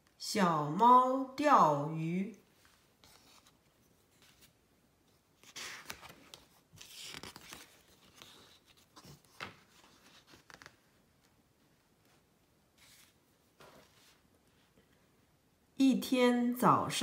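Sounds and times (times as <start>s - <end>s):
light paper crinkles and taps: 2.5s - 11.4s
paper rustling: 2.5s - 15.0s.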